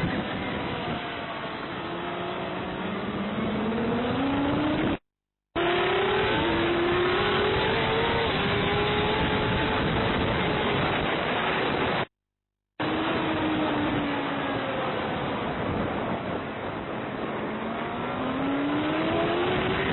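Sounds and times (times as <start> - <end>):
racing motorcycle engine accelerating: 0.0 - 5.0, 5.6 - 12.1, 16.9 - 19.9
wind rush on microphone: 6.2 - 12.1, 12.9 - 19.9.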